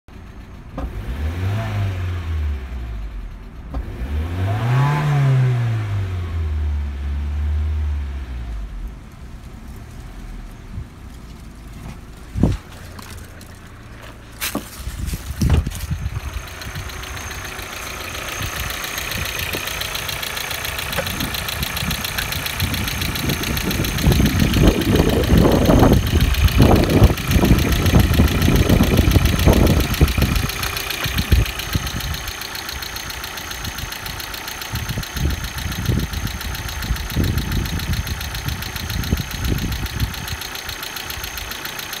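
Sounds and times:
car engine idling: 0:00.1 - 0:42.0.

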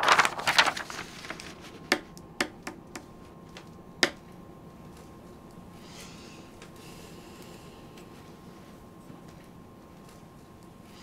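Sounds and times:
paper rustling: 0:00.0 - 0:02.0.

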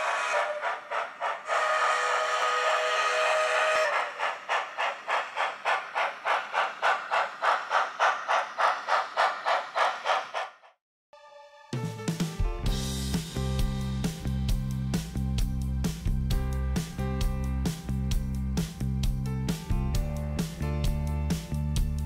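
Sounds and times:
steam whistle toots: 0:00.0 - 0:04.4
steam engine chuffing: 0:00.0 - 0:10.8.

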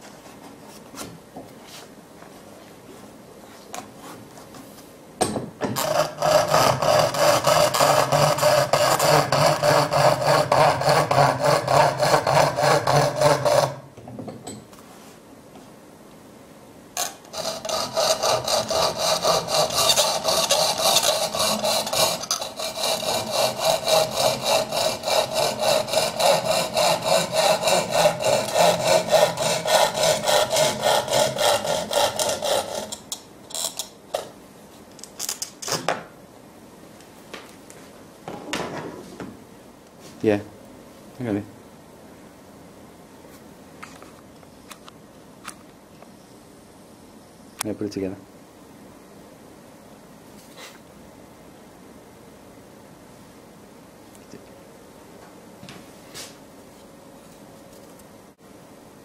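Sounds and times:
coping saw cutting board: 0:05.8 - 0:13.8, 0:17.0 - 0:33.1.

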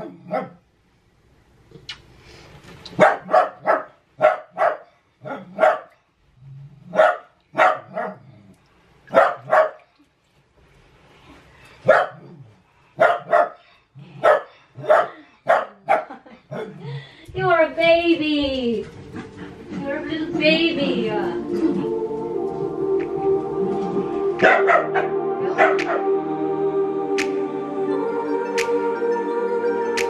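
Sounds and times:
small dog barking: 0:00.0 - 0:00.6, 0:03.0 - 0:05.9, 0:06.9 - 0:08.2, 0:09.1 - 0:09.8, 0:11.8 - 0:12.2, 0:13.0 - 0:13.6, 0:14.2 - 0:16.8.

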